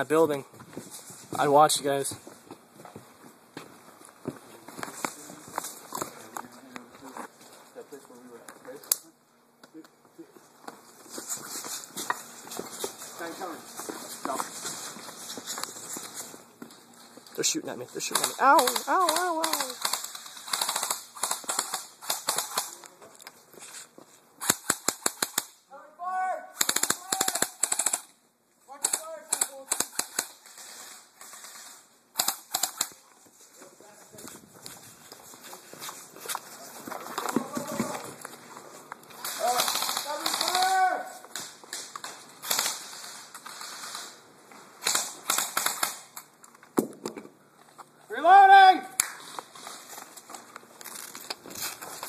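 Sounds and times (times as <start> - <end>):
airsoft rifles firing: 18.1 - 22.8, 24.4 - 25.6, 26.5 - 28.1, 28.8 - 33.0, 39.2 - 44.2, 44.8 - 46.2.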